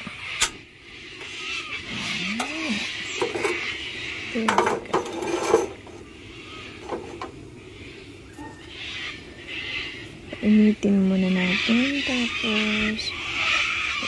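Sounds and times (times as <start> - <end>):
gas burner hissing: 0.0 - 8.2.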